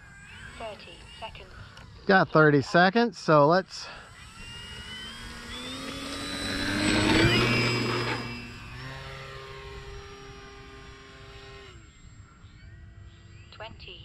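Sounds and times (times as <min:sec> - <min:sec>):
model plane electric motor whine: 0:00.0 - 0:03.0, 0:03.7 - 0:13.5.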